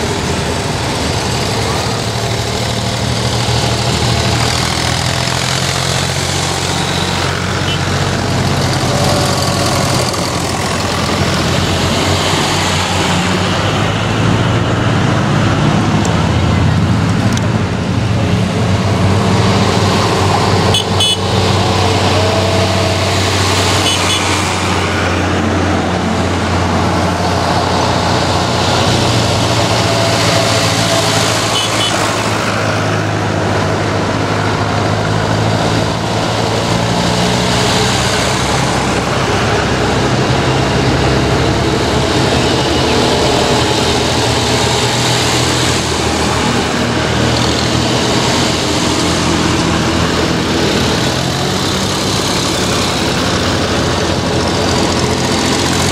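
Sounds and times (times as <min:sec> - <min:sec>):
tractor engines running: 0:00.0 - 0:55.9.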